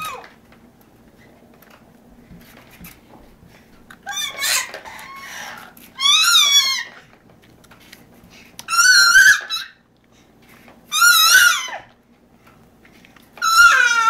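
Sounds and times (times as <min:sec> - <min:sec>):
baby squealing happily: 0:00.0 - 0:00.3, 0:04.0 - 0:07.0, 0:08.7 - 0:09.8, 0:10.9 - 0:11.9, 0:13.4 - 0:14.0.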